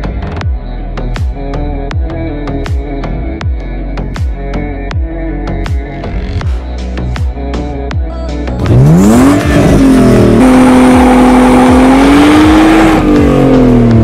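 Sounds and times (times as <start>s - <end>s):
electronic music with a beat: 0.0s - 14.0s
car engine revving hard: 8.6s - 14.0s.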